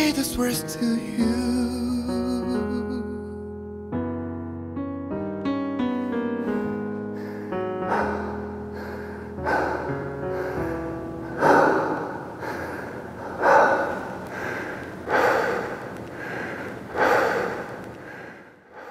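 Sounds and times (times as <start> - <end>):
song's held notes: 0.0 - 13.3
heavy rough breathing: 6.4 - 18.9.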